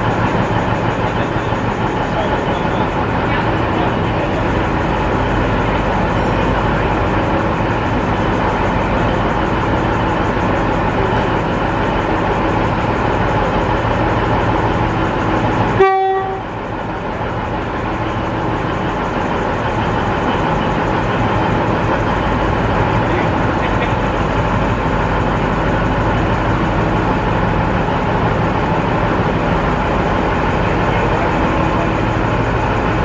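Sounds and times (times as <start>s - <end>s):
diesel locomotive idling: 0.0s - 33.0s
train horn toot: 15.8s - 16.6s.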